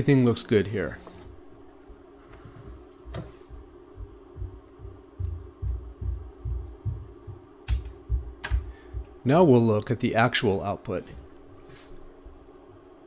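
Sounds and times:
sharp clicks: 0:07.6 - 0:08.7.

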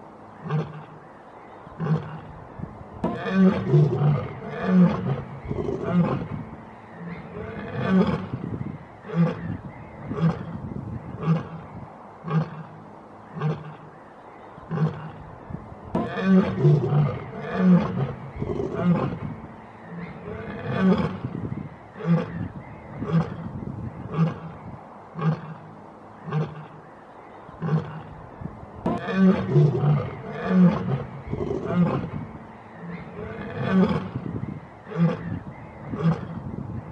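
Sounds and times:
lioness roaring: 0:03.0 - 0:10.5, 0:15.9 - 0:21.3, 0:28.8 - 0:36.4.

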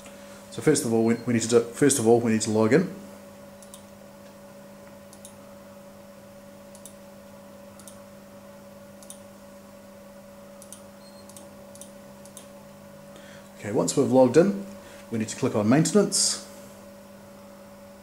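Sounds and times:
low electrical hum: 0:00.0 - 0:18.0
computer mouse clicking: 0:03.6 - 0:03.8, 0:05.1 - 0:05.4, 0:06.7 - 0:07.0, 0:07.8 - 0:08.0, 0:09.0 - 0:09.2, 0:10.6 - 0:12.5.

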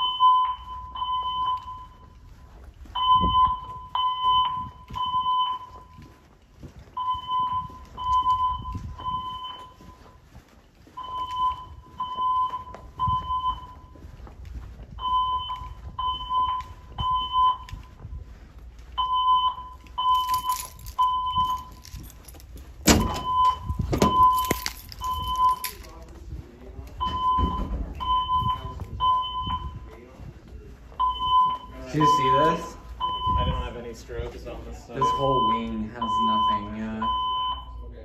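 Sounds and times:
fire alarm evacuation beeps: 0:00.0 - 0:26.1, 0:26.9 - 0:38.0
jangling rattle: 0:20.1 - 0:23.0, 0:24.2 - 0:25.9.

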